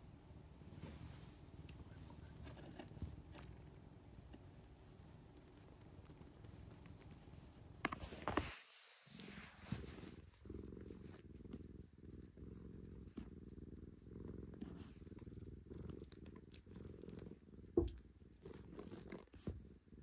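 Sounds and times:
cat purring: 0.0s - 20.0s
faint rubbing clicks: 0.8s - 11.6s.

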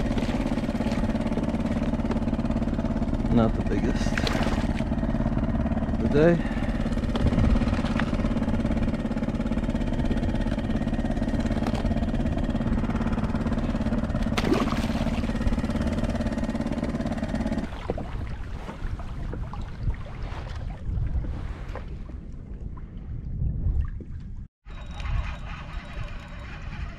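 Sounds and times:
steady engine drone: 0.0s - 18.7s, 24.7s - 26.9s
water lapping against kayak hull: 0.0s - 24.5s
wind rumbling on microphone: 0.0s - 26.9s.

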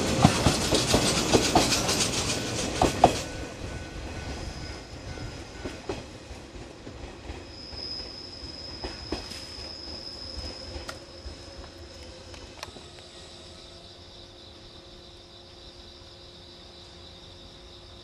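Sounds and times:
wheels clacking over rail joints: 0.0s - 7.5s
train rumbling past: 0.0s - 18.0s.

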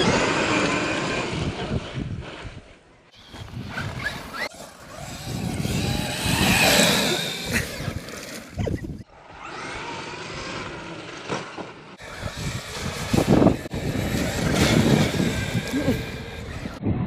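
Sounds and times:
tyres on gravel: 3.1s - 9.0s, 11.0s - 16.8s
rc truck motor running: 3.2s - 16.8s.

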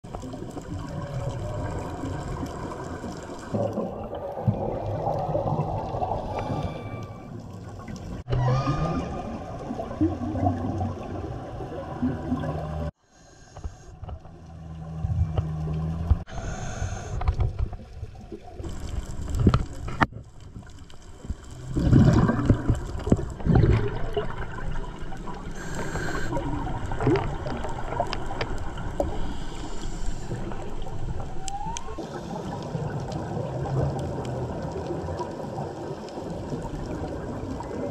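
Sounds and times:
underwater bubbles gurgling: 0.0s - 13.0s, 14.0s - 37.9s.

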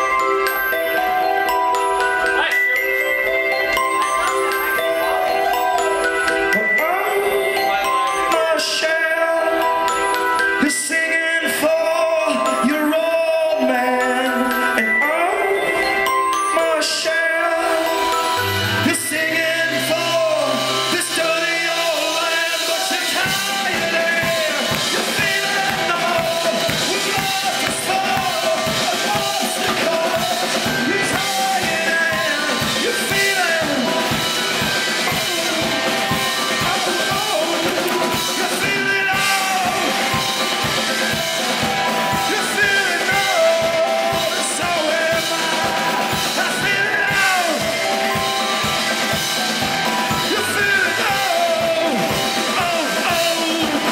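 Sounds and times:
keyboards: 0.0s - 53.9s
man singing loudly: 6.5s - 41.2s, 42.0s - 48.8s, 49.9s - 53.9s
drum and bass beat: 17.7s - 53.9s.

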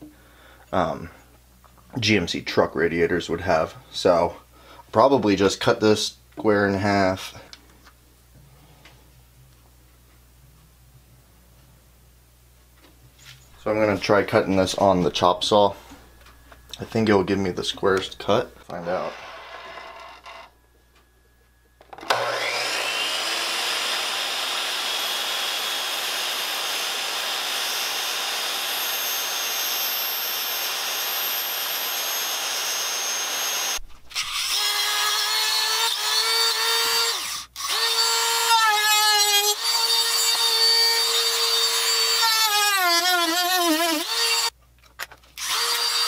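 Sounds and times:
miter saw cutting rubber hose: 21.9s - 44.5s.

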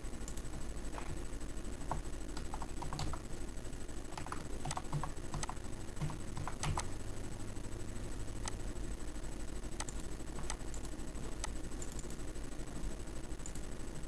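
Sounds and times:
computer keyboard typing: 1.9s - 3.3s, 4.1s - 7.0s, 9.8s - 12.2s.

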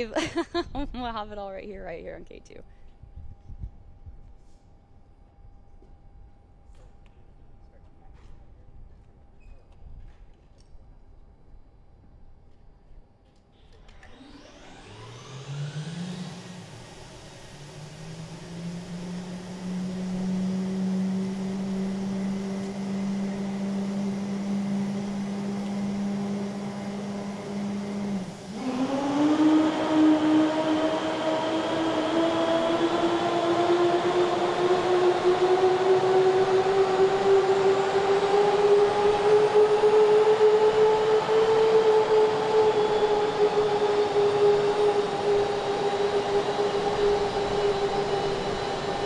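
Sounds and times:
jet turbine whine: 13.6s - 49.0s.

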